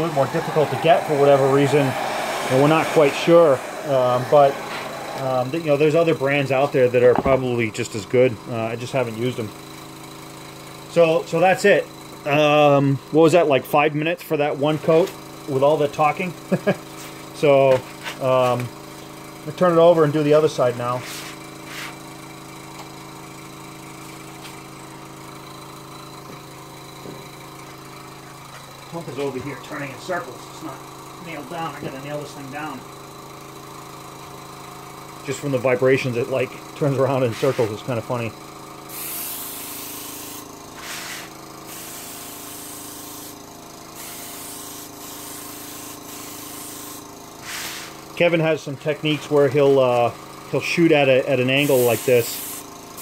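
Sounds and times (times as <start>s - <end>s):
airbrush hissing: 0.0s - 6.7s, 38.9s - 43.4s, 44.0s - 48.0s, 51.6s - 53.0s
air pump humming: 0.0s - 12.9s, 22.7s - 48.2s, 51.4s - 53.0s.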